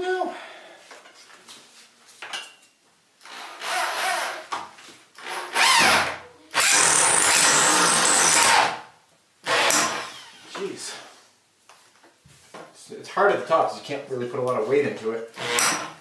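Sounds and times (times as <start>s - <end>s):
power drill driving screw: 3.2s - 4.4s, 5.2s - 8.8s, 9.5s - 10.5s, 15.4s - 16.0s.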